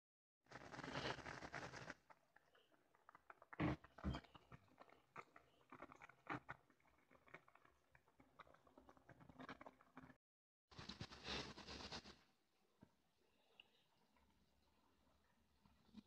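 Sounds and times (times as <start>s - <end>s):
noodles bubbling in boiling water: 0.5s - 10.2s.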